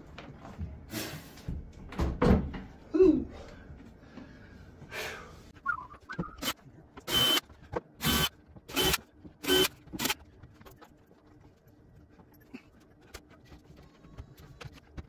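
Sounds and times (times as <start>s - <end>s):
impact driver driving screws: 6.4s - 7.4s, 8.0s - 10.2s.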